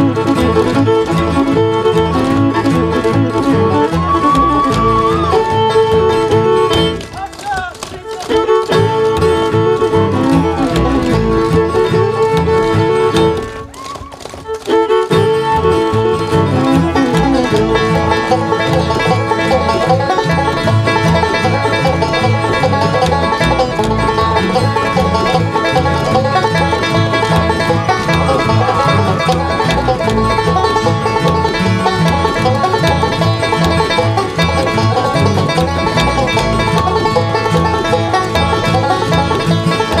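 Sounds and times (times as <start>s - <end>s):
bluegrass string band playing: 0.0s - 40.0s
clog taps clicking: 4.6s - 11.6s, 16.7s - 40.0s.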